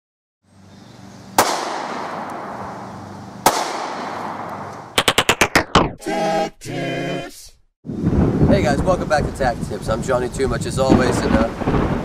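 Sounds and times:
pistol shots with echo: 1.4s - 2.6s, 3.4s - 5.3s
sharp clicks: 4.5s - 6.0s.

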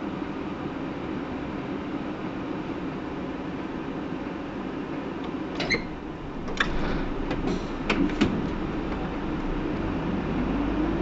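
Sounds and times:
bus engine rumble: 0.0s - 11.0s
clicks and knocks: 6.4s - 9.2s
low whine rising in pitch: 8.5s - 11.0s.

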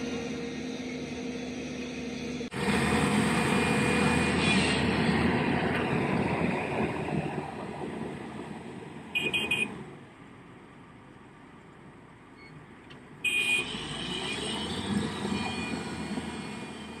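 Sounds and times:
heavy diesel machinery running: 0.0s - 10.0s, 13.3s - 17.0s.

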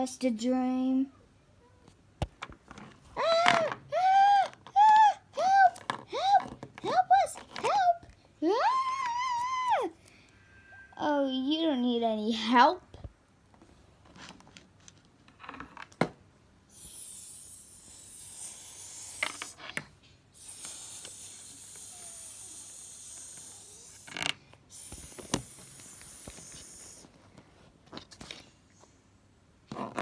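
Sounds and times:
steady hiss: 16.7s - 27.2s.

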